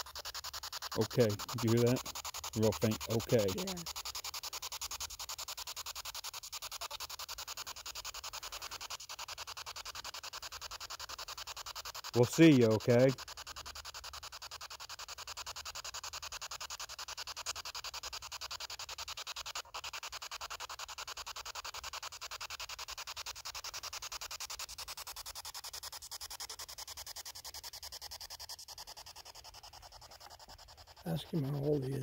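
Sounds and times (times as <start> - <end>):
radio static pulsing: 0.8 - 4.0, 12.2 - 13.2, 29.4 - 32.0.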